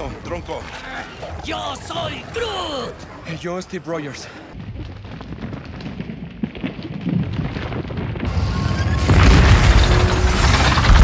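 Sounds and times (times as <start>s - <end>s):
deep rumbling and booms: 4.6s - 11.0s.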